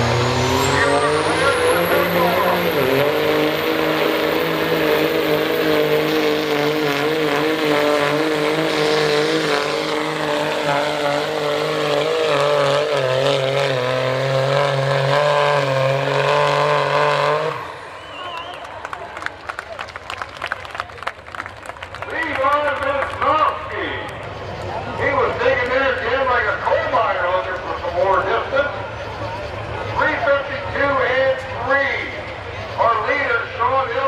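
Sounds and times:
truck engine under full load: 0:00.0 - 0:34.0
high whistle: 0:17.7 - 0:18.8.

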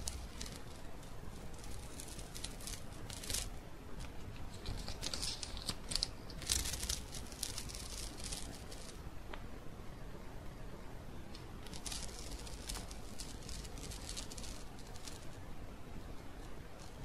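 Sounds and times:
paper tearing and crackling: 0:00.0 - 0:09.0, 0:11.6 - 0:15.4.

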